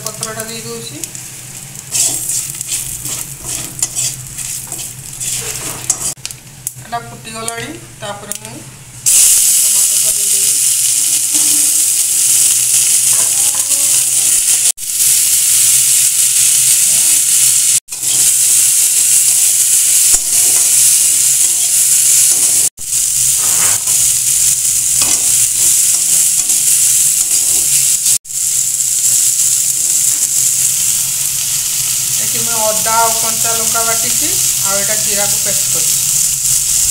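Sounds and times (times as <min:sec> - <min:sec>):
vegetables sizzling in hot oil: 0:00.0 - 0:07.6, 0:08.2 - 0:36.9
wooden spatula stirring: 0:01.9 - 0:06.2.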